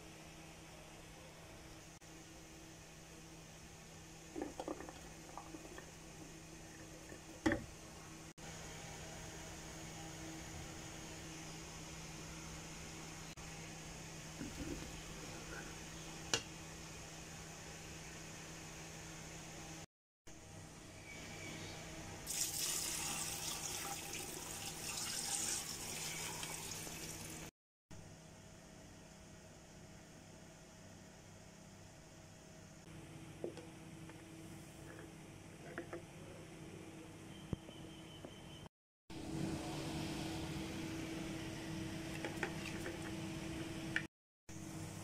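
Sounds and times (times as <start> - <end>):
steady mechanical hum: 0.0 - 24.9, 25.7 - 45.0
water pouring into pot: 22.3 - 27.5.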